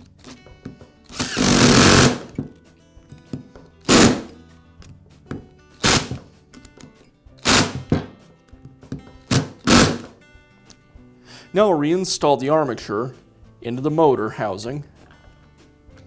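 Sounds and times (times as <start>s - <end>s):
power screwdriver driving screws: 1.1s - 2.3s, 3.9s - 4.3s, 5.8s - 6.2s, 7.4s - 7.9s, 9.3s - 10.1s.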